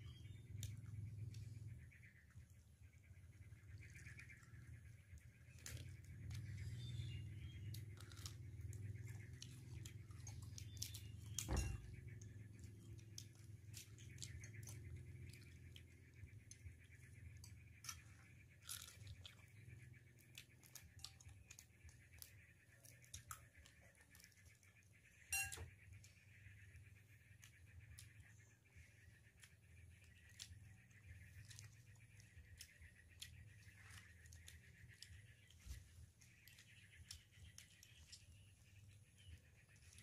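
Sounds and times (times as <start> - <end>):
chewing: 5.4 - 24.9, 29.4 - 40.0.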